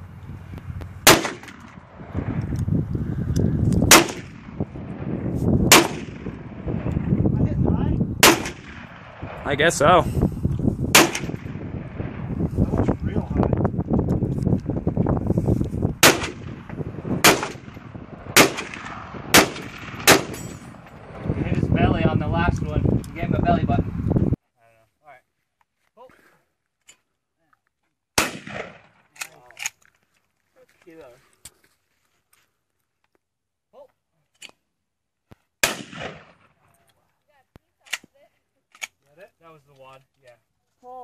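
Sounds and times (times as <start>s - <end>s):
rifle shots: 1.0s - 2.2s, 3.8s - 6.9s, 8.2s - 9.6s, 10.9s - 12.3s, 16.0s - 20.9s, 28.2s - 29.0s, 35.6s - 36.6s.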